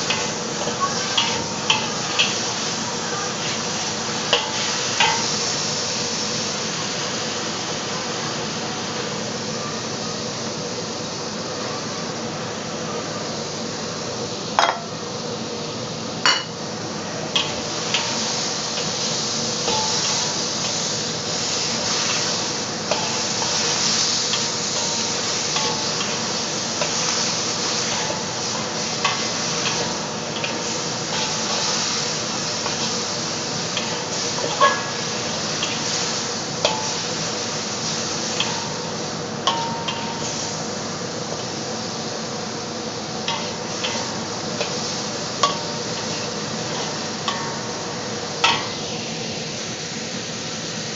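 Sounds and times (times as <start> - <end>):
meat and onion sizzling in a wok: 0.0 - 50.9
metal spatula scraping wok: 43.2 - 47.8.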